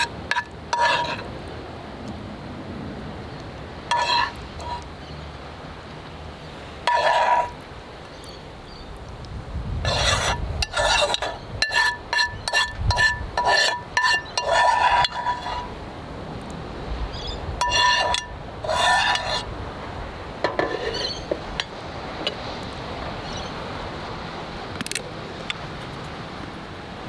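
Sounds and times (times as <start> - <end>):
spatula scraping frying pan: 0.0 - 1.3, 3.9 - 4.8, 6.8 - 7.6, 9.8 - 15.8, 17.6 - 19.5, 20.4 - 21.7.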